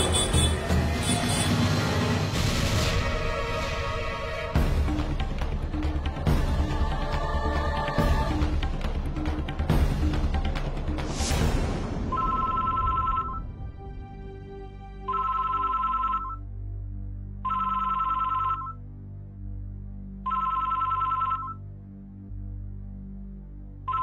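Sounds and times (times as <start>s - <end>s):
soft background music: 0.0s - 24.0s
telephone ringing: 12.1s - 13.4s, 15.1s - 16.4s, 17.4s - 18.8s, 20.2s - 21.6s.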